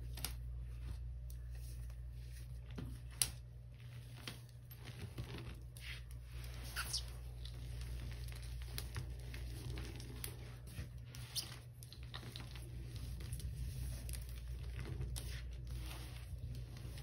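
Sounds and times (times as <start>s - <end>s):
steady low hum: 0.0s - 17.0s
crumbs pattering onto powder: 7.2s - 17.0s.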